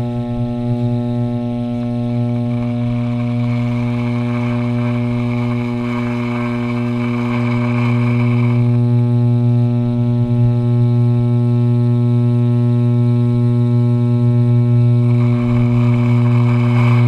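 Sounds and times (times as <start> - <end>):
electric hair clippers buzzing: 1.7 - 9.2, 14.8 - 17.0
clippers rasping through hair: 2.1 - 8.8, 15.0 - 17.0.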